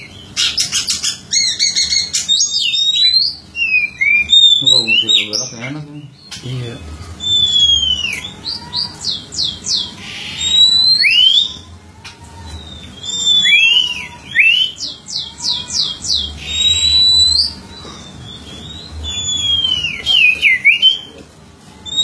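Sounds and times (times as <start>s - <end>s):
bird harsh rasps: 0.0s - 21.2s
bird singing whistles: 1.3s - 6.2s, 7.2s - 11.6s, 12.6s - 17.6s, 18.2s - 21.1s.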